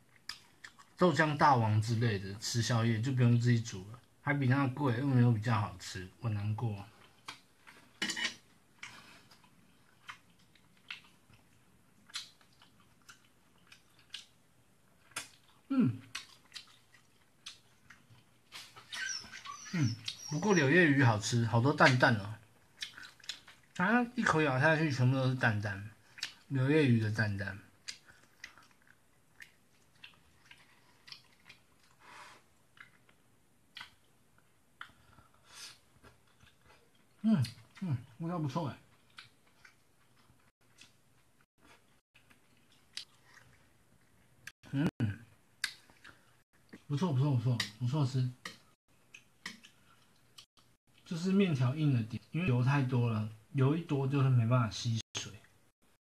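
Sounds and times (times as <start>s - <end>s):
person chewing food: 0.0s - 1.0s, 6.9s - 20.3s, 21.9s - 23.8s, 26.0s - 26.5s, 27.7s - 37.9s, 38.8s - 44.6s, 45.3s - 46.9s, 48.4s - 51.1s
spaghetti slurped and chewed: 15.0s - 20.3s, 27.9s - 33.2s.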